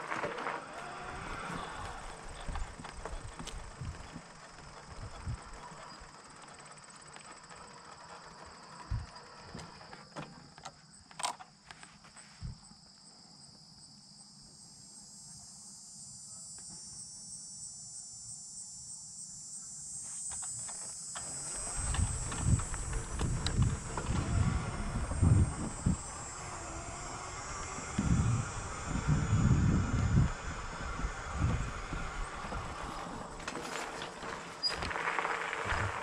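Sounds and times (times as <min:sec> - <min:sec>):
insects trilling: 0:00.0 - 0:36.0
wind rumble on microphone: 0:01.1 - 0:04.2, 0:04.8 - 0:05.6, 0:21.5 - 0:33.5, 0:35.6 - 0:36.0.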